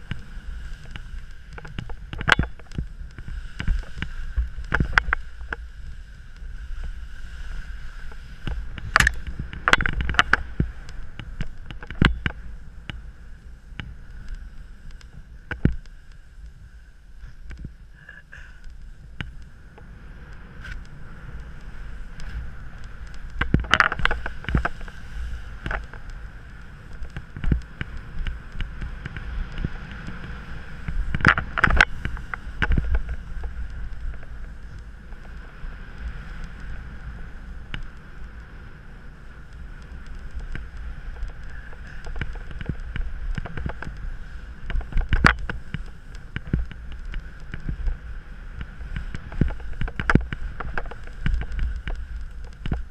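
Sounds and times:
hiss of riding over snow: 0:00.0 - 0:52.9
wind on microphone: 0:00.0 - 0:52.9.

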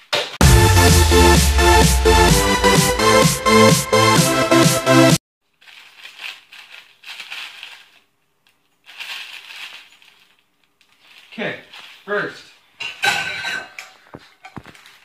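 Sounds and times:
electronic dance music: 0:00.4 - 0:05.2
plastic packet crinkling: 0:05.4 - 0:12.1.

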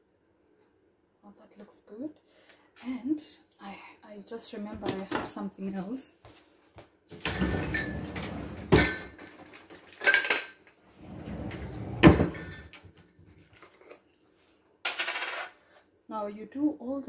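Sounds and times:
dishes and utensils handled: 0:07.4 - 0:10.8, 0:11.4 - 0:13.0.

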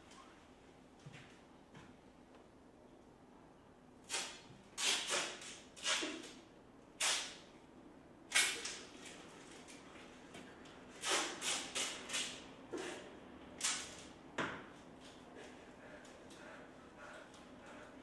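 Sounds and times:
tape ripping off roll: 0:04.1 - 0:06.4, 0:07.0 - 0:07.4, 0:11.0 - 0:12.4.

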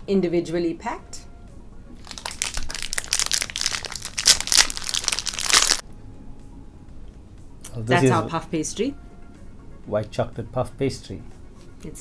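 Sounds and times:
plastic wrappers crinkling: 0:02.0 - 0:05.8.

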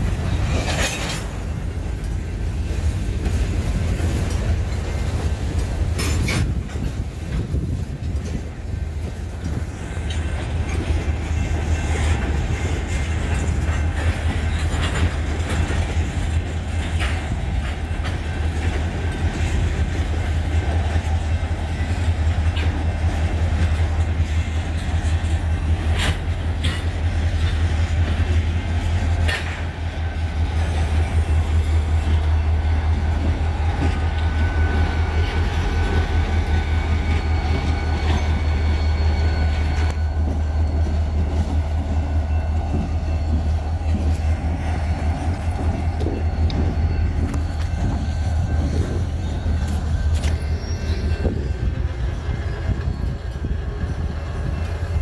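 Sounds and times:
freight train rumbling: 0:00.0 - 0:55.0
wheels clacking over rail joints: 0:00.0 - 0:55.0
faint high squeal: 0:33.5 - 0:55.0.

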